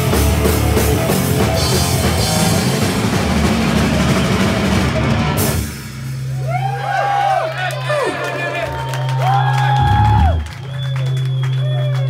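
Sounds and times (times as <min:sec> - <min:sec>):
distorted electric guitars: 0:00.0 - 0:06.4
pounding drum kit: 0:00.0 - 0:08.2, 0:09.5 - 0:10.6
bass guitar: 0:00.0 - 0:12.0.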